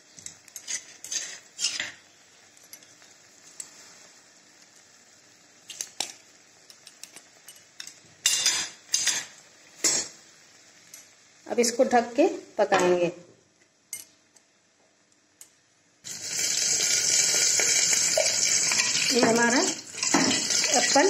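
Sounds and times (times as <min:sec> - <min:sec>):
metal utensils clinking on pan: 0:06.8 - 0:10.1, 0:17.7 - 0:21.0.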